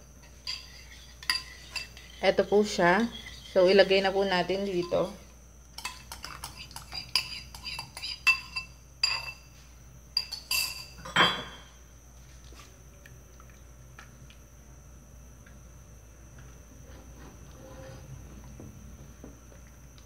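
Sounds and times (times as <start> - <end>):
dishes clinking against pot: 5.8 - 9.4, 10.2 - 11.7.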